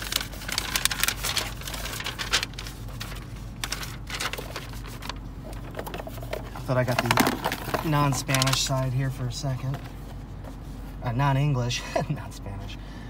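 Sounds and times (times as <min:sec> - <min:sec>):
paper rustling: 0:00.0 - 0:09.0
low steady hum: 0:00.0 - 0:13.0.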